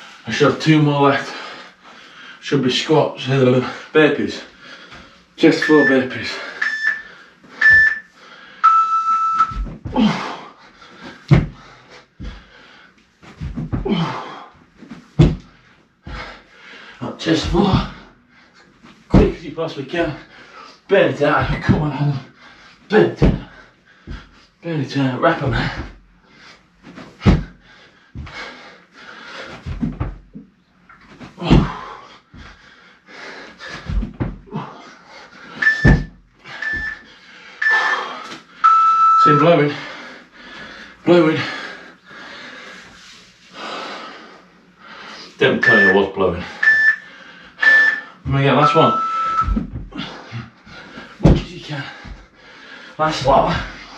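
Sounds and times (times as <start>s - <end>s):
heavy breathing: 1.1s - 2.4s, 3.4s - 8.8s, 9.5s - 19.1s, 20.0s - 20.9s, 21.9s - 24.6s, 25.5s - 53.9s
man panting and wheezing: 3.5s - 8.8s, 9.4s - 19.1s, 21.5s - 24.6s, 25.5s - 53.9s
interval timer beeping: 5.5s - 9.6s, 35.6s - 37.0s, 37.6s - 38.0s, 38.6s - 39.6s, 45.6s - 49.6s
dull thumps on floor: 15.2s - 15.5s, 27.2s - 27.5s.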